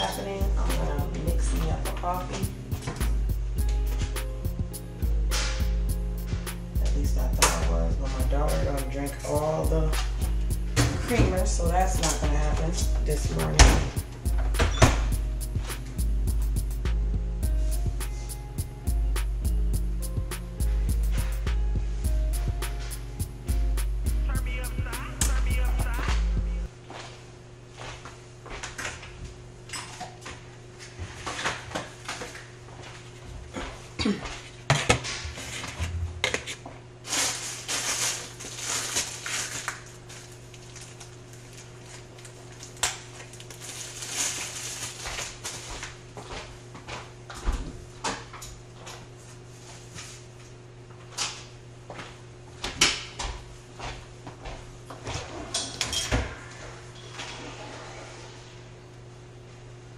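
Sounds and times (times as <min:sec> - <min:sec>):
steady low hum: 0:00.0 - 0:59.9
dishes and cutlery clinking: 0:55.5 - 0:56.4.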